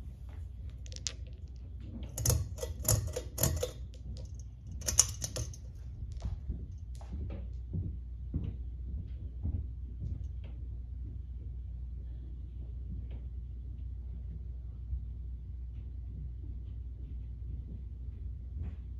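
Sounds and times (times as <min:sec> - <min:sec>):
fan motor hum: 0:00.0 - 0:18.9
pull-chain switch clicking: 0:02.1 - 0:05.7
chain rattling: 0:02.1 - 0:05.9.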